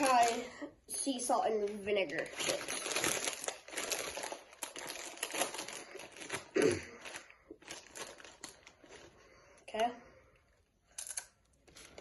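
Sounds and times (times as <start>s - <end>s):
chip bag crinkling: 0.0s - 0.6s, 1.3s - 9.2s.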